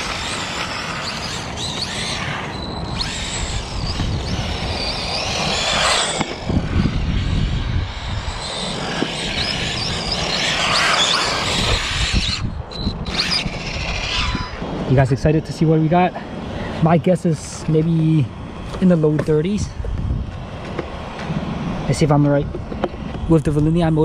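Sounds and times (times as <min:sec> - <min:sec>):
electric rc car motor whining: 0:00.0 - 0:15.4.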